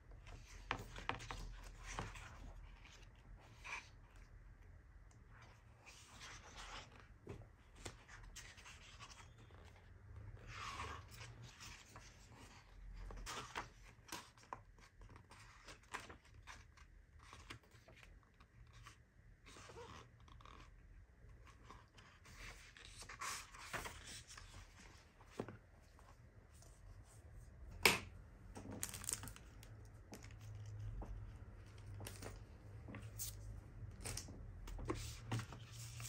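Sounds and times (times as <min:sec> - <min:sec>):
book pages turning: 0:05.4 - 0:09.8, 0:21.4 - 0:27.2, 0:28.6 - 0:36.0.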